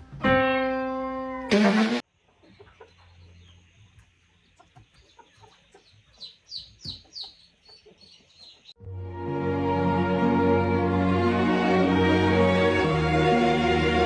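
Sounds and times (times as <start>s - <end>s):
guineafowl calling: 4.6s - 8.7s.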